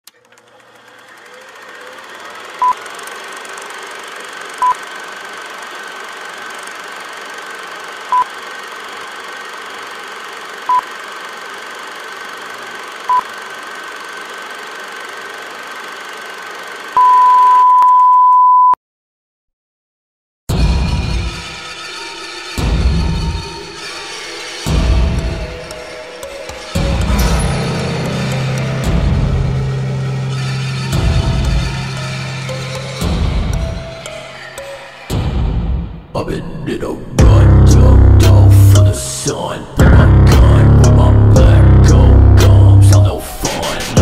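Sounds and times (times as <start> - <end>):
long beep: 17.0 - 18.8
short electronic beeps: 17.0 - 18.8.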